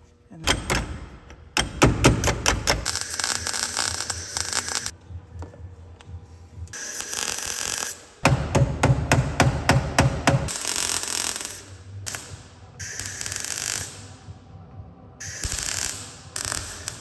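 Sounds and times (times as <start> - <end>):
welder crackling and buzzing: 2.4 - 5.0, 6.7 - 8.2, 10.5 - 14.2, 15.2 - 17.0.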